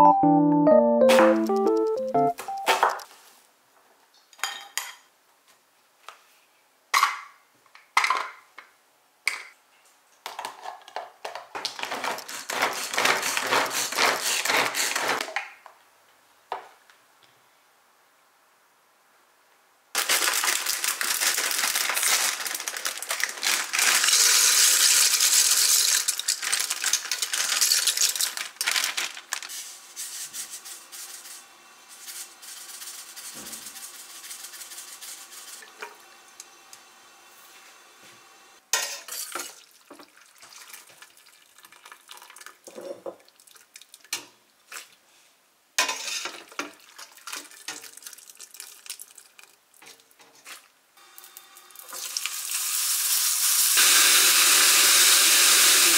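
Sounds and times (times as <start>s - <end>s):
dry pasta poured into pot: 20.0s - 29.6s, 46.8s - 49.6s
cooking scrapes and clinks: 38.7s - 39.6s, 45.8s - 46.7s.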